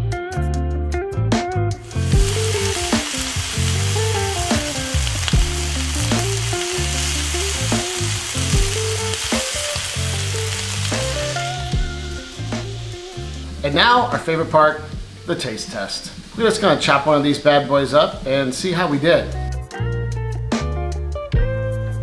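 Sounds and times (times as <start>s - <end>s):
meat sizzling in a skillet: 1.8s - 14.3s
tongs moving meat in pan: 1.9s - 11.9s.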